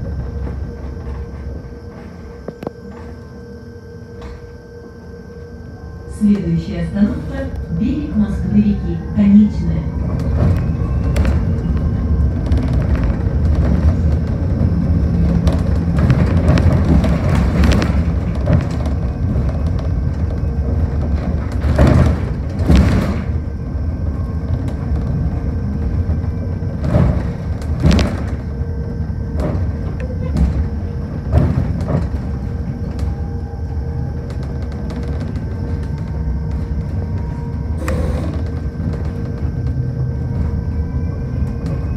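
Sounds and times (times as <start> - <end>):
bus thumps and rattles over bumps: 0.0 - 3.2, 9.7 - 41.9
electric drive whine: 0.0 - 41.9
low road rumble: 0.0 - 41.9.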